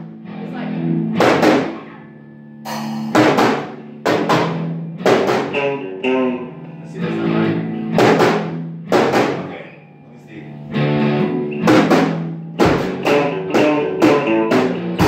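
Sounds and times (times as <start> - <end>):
electric bass notes: 0.0 - 15.0
cymbal crashes and drum hits: 2.7 - 5.6.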